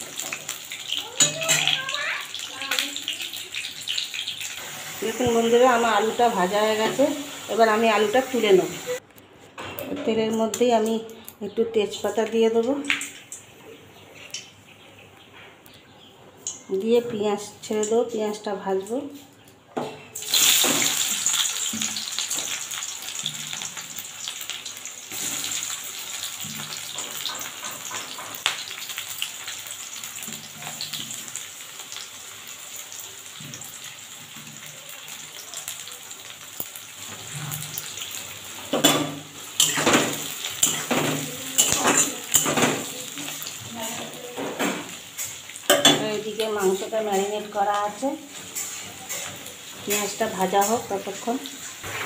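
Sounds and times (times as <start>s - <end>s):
onions sizzling in hot oil: 0.0s - 9.0s, 20.2s - 52.0s
spatula scraping a pan: 39.6s - 44.5s, 48.3s - 52.0s.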